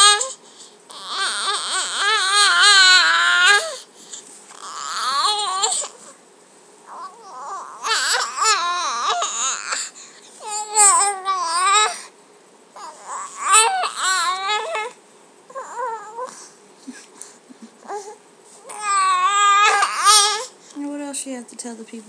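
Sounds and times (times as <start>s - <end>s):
baby crying: 0.0s - 3.9s, 4.6s - 6.1s, 6.9s - 12.1s, 12.8s - 16.4s, 17.8s - 20.6s.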